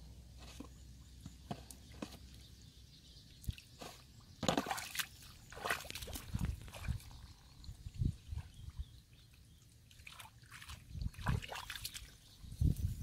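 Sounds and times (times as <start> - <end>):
mud drips and splats: 3.3 - 12.4
bare feet squelching in mud: 3.4 - 7.3, 9.9 - 12.2.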